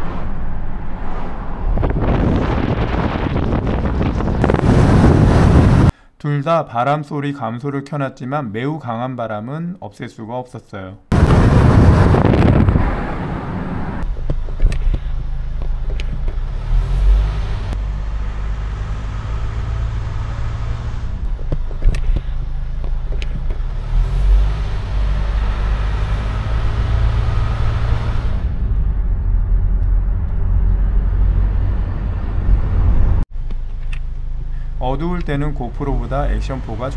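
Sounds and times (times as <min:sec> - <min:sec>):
car driving rumble: 0:00.0 - 0:05.9, 0:11.1 - 0:36.9
wind buffeting microphone: 0:00.0 - 0:05.9, 0:11.1 - 0:15.1.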